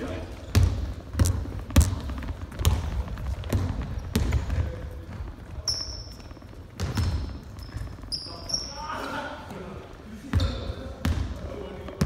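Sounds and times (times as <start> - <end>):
basketball bouncing on wooden floor: 0.4 - 8.1, 10.3 - 12.0
sneaker squeak: 5.4 - 9.5, 10.2 - 11.2.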